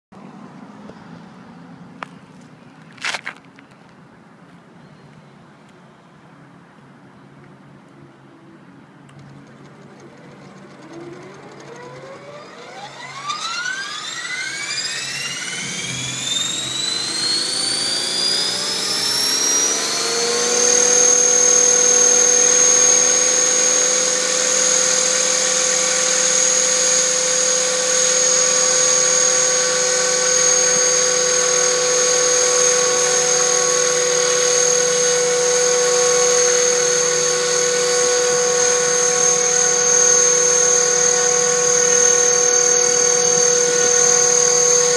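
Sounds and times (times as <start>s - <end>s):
model helicopter motor whine: 9.0s - 44.9s.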